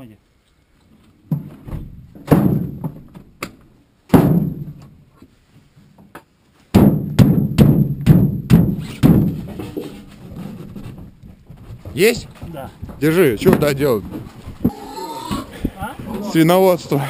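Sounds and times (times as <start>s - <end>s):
heavy blows on wooden shed: 1.3s - 3.4s, 4.1s - 5.0s, 6.7s - 17.0s.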